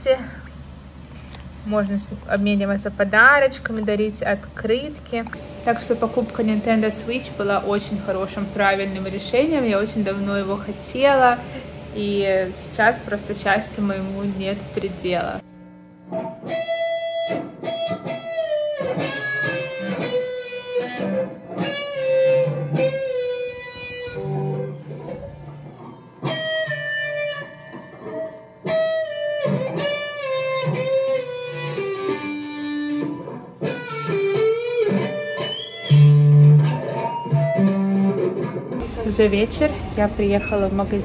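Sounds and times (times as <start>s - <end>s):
electric guitar lead line: 5.2s - 41.0s.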